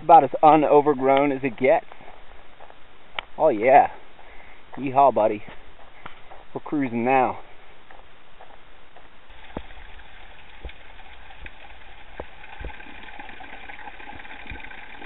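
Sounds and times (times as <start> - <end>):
sharp water taps: 9.3 - 15.0
water trickling and splashing: 9.3 - 15.0.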